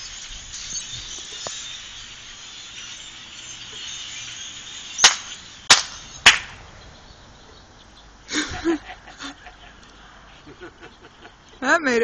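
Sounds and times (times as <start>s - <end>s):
flock of blackbirds calling: 0.0s - 12.0s
loud sharp bangs: 5.0s - 6.7s.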